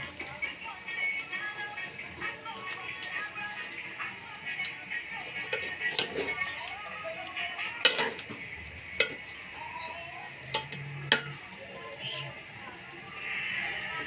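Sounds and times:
pot sizzling: 0:00.0 - 0:14.0
metal ladle clanking against pot: 0:07.8 - 0:08.3, 0:09.0 - 0:09.2, 0:10.5 - 0:11.4.

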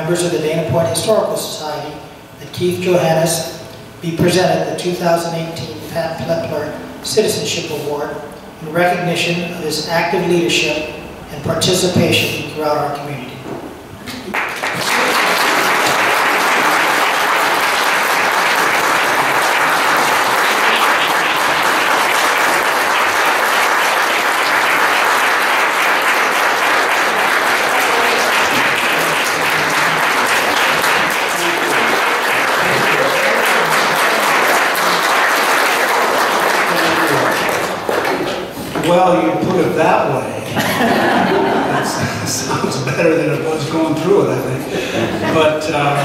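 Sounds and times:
audience applauding: 0:14.2 - 0:38.5.

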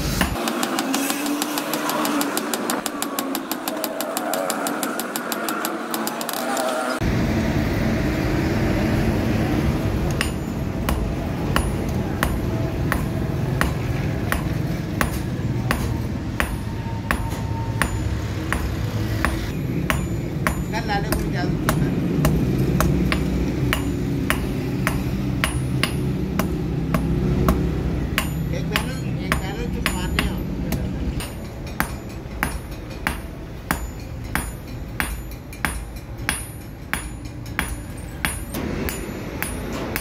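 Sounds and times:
hammer blows on anvil: 0:10.2 - 0:40.0.

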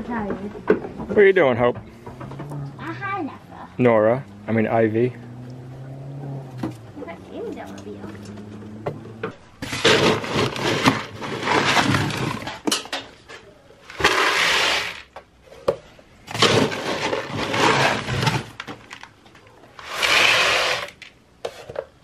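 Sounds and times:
pellets scooped from plastic bucket: 0:09.6 - 0:12.5, 0:13.9 - 0:15.1, 0:16.3 - 0:18.5
pellets pouring and rattling: 0:09.6 - 0:12.6, 0:13.8 - 0:15.1, 0:16.3 - 0:19.0, 0:19.8 - 0:21.1.

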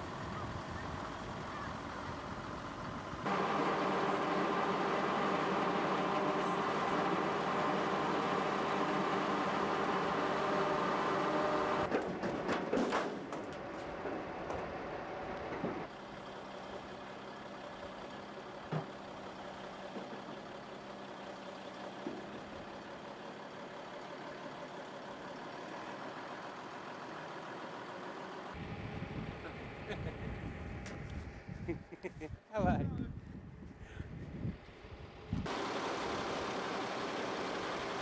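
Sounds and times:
truck engine idling: 0:00.0 - 0:11.9, 0:13.2 - 0:31.2, 0:34.8 - 0:38.0
crane hoisting: 0:03.2 - 0:28.8
knocks and clatter: 0:11.9 - 0:14.8.

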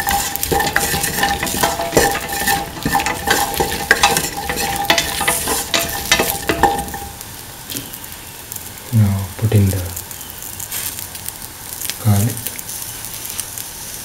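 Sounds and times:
spatula scraping metal pan: 0:00.0 - 0:07.2
vegetables sizzling in hot oil: 0:00.0 - 0:14.0.

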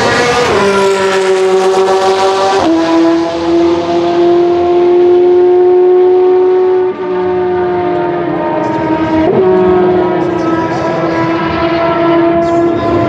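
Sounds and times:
racing car engine screaming: 0:00.0 - 0:04.9.

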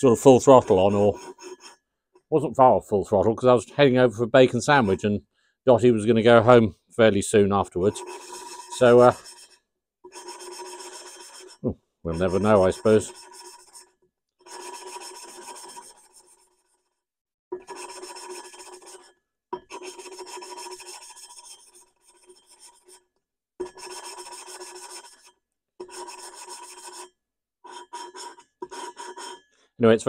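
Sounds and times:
valve lapping gritty grinding rasp: 0:00.1 - 0:01.8, 0:07.8 - 0:16.9, 0:17.5 - 0:29.5.

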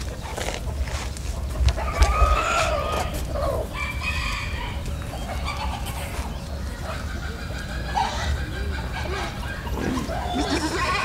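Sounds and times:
rooster crowing: 0:01.8 - 0:04.8.

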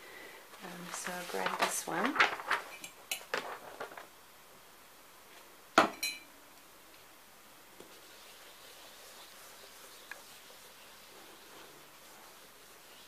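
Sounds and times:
kitchenware clinking: 0:05.8 - 0:06.3.

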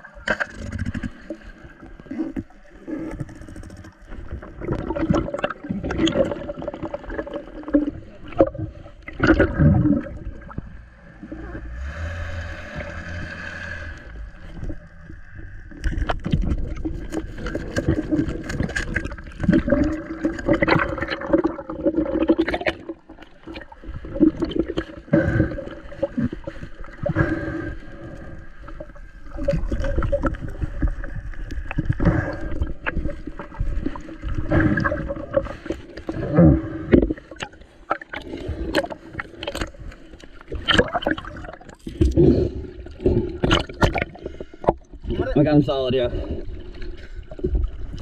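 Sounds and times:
underwater gurgling bubbles: 0:00.0 - 0:48.0
faint steady hum: 0:08.0 - 0:17.9.

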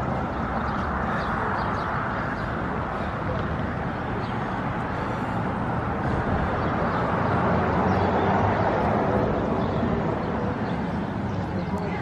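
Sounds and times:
road traffic: 0:00.0 - 0:12.0
vehicle passing: 0:00.0 - 0:12.0.

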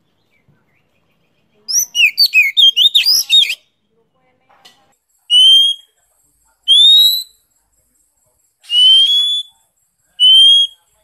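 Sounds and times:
bird whistled notes: 0:01.7 - 0:03.6, 0:06.7 - 0:07.4, 0:08.6 - 0:09.5, 0:10.2 - 0:10.8.

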